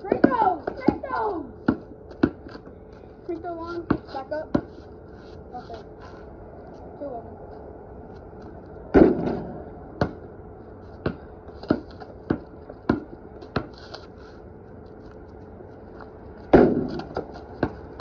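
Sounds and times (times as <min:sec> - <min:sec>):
basketball bouncing on concrete: 0:00.0 - 0:02.7, 0:03.4 - 0:04.8, 0:08.9 - 0:10.2, 0:10.9 - 0:13.8, 0:16.5 - 0:18.0.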